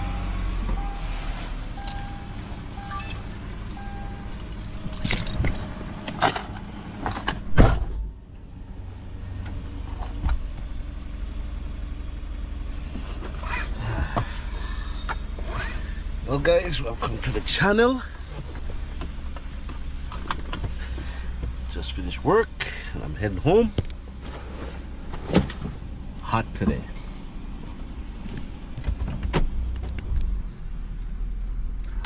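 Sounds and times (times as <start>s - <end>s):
car idling hum: 0.0s - 32.0s
warning chime beeping: 1.8s - 4.5s
loud thump: 7.4s - 8.1s.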